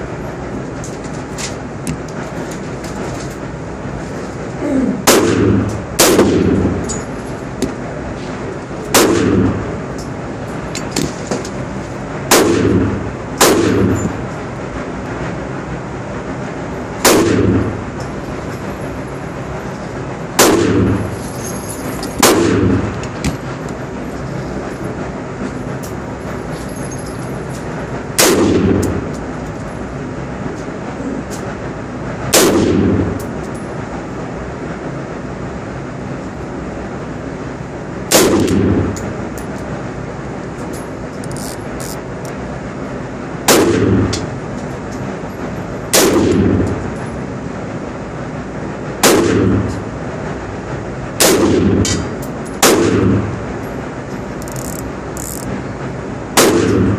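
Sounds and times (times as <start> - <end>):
steady background noise: 0.0 - 56.9
rifle shots with echo: 5.0 - 6.8, 8.9 - 9.7, 12.3 - 14.1, 17.0 - 17.7, 20.4 - 21.0, 22.2 - 22.9, 28.2 - 29.1, 32.3 - 33.2, 38.1 - 38.9, 43.5 - 44.1, 45.9 - 46.6, 49.0 - 49.7, 51.2 - 52.0, 52.6 - 53.3, 56.4 - 56.9.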